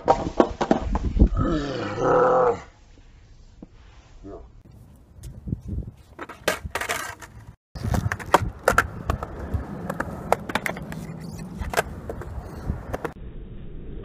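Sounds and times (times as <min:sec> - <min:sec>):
skateboard rolling on concrete: 0:04.6 - 0:13.2
skateboard clacking on concrete: 0:06.2 - 0:13.2.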